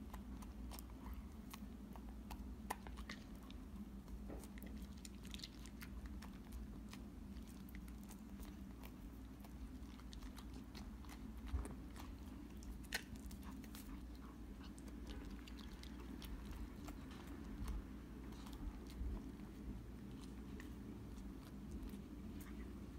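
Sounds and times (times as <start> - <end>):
dog licking and chewing: 0.0 - 22.9
low steady hum: 0.0 - 22.9.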